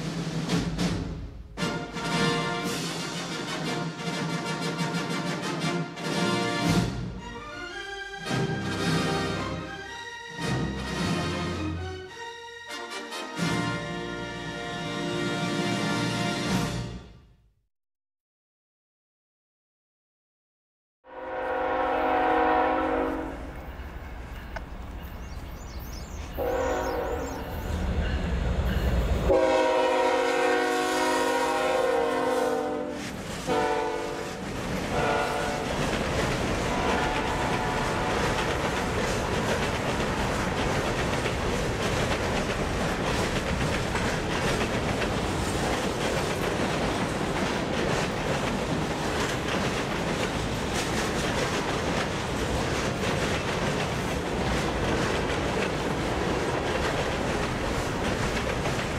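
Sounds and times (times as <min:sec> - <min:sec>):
train wheels clattering on rails: 0:00.0 - 0:07.0, 0:32.9 - 0:58.9
locomotive horn blasts: 0:21.1 - 0:23.6, 0:26.4 - 0:27.6, 0:29.3 - 0:35.7, 0:36.7 - 0:38.4.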